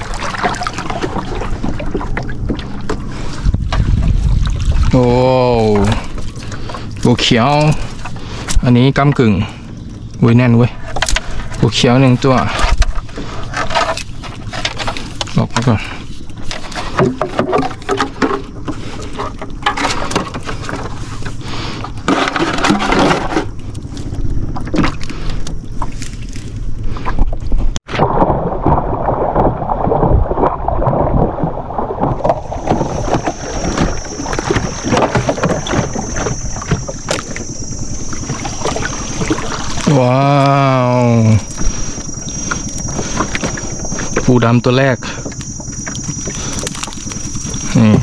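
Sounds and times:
high-pitched hum: 0:00.0 - 0:48.0
crab traps knocking and clattering: 0:10.2 - 0:26.0, 0:28.6 - 0:48.0.

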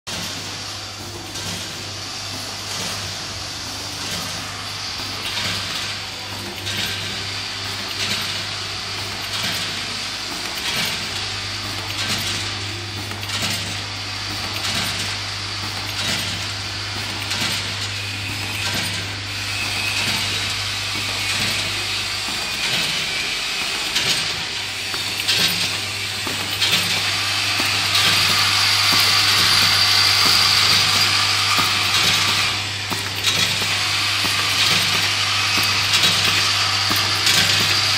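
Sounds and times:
machine clatter: 0:00.1 - 0:37.9
vibratory feeders humming: 0:00.1 - 0:37.9
screws rattling: 0:18.4 - 0:37.9.

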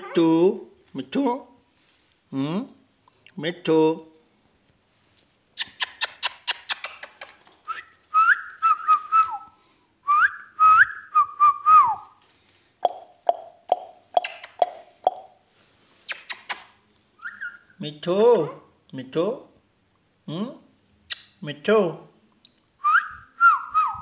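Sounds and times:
parakeet clicks: 0:12.8 - 0:15.2
parakeet whistling: 0:17.2 - 0:17.8.

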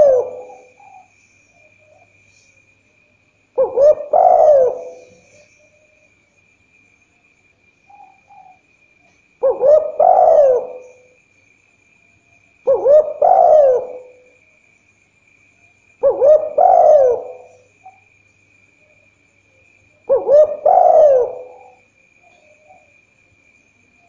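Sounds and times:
dove cooing: 0:00.0 - 0:01.1, 0:03.6 - 0:05.8, 0:07.9 - 0:08.6, 0:09.4 - 0:11.2, 0:12.6 - 0:14.3, 0:16.0 - 0:18.0, 0:19.9 - 0:22.9.

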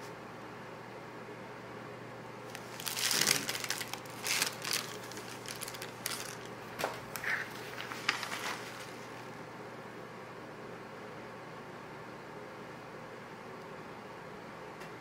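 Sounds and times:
plastic bag crinkling: 0:02.5 - 0:09.3.

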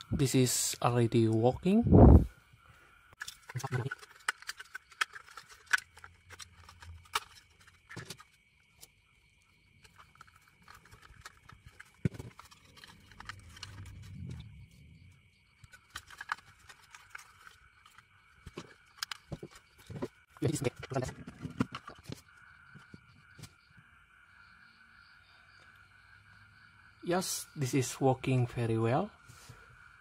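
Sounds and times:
plastic parts clicking: 0:03.2 - 0:08.4, 0:09.8 - 0:14.4, 0:15.6 - 0:22.2
plastic rubbing and scraping: 0:03.2 - 0:08.9, 0:09.8 - 0:14.8, 0:15.6 - 0:23.6.

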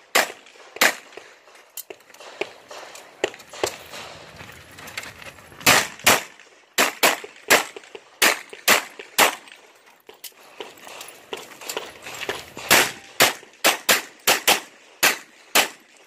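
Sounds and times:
handgun shots: 0:05.6 - 0:09.5, 0:12.6 - 0:15.8.

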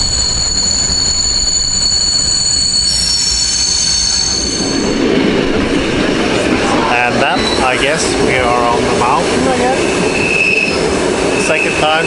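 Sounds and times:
train wheels squealing on rails: 0:00.0 - 0:05.1, 0:06.7 - 0:08.2, 0:09.8 - 0:12.0
train carriage rumble: 0:00.0 - 0:12.0.

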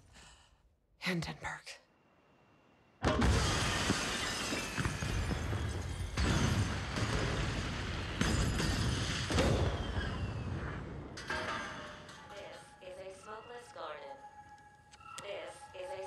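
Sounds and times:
explosion blast: 0:03.0 - 0:11.2
fire and debris noise: 0:03.1 - 0:11.7
glass shattering: 0:03.2 - 0:10.4.

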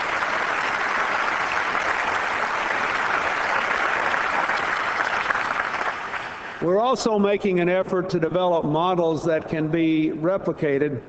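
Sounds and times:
large audience applauding: 0:00.0 - 0:06.7.

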